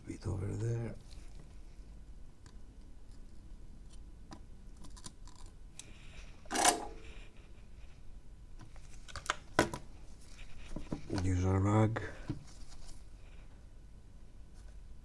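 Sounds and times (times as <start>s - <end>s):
tools clattering: 6.5s - 7.1s.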